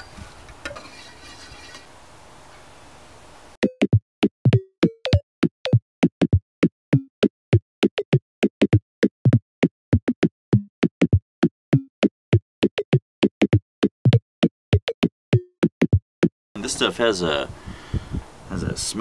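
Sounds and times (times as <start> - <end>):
drum machine beat: 3.6 - 16.3.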